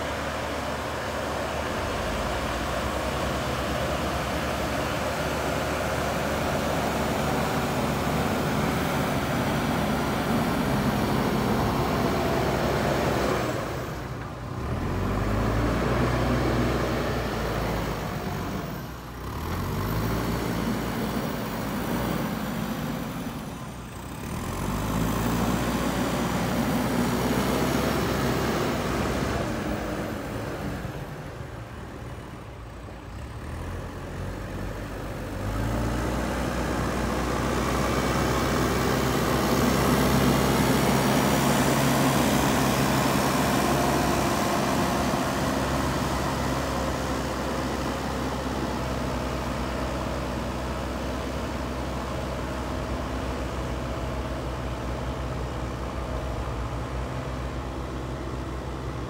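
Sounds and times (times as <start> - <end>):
diesel engine revving: 0.0 - 59.0.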